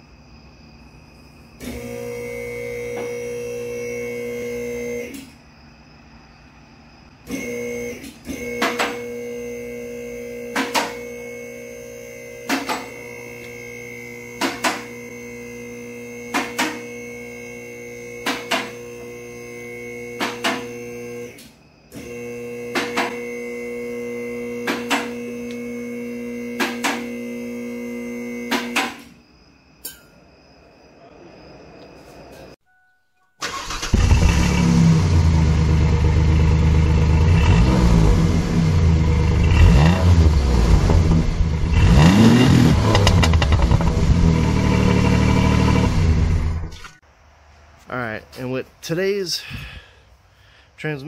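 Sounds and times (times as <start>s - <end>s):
hydraulic pump motor running: 1.6s - 5.2s, 7.3s - 29.0s, 33.4s - 47.0s.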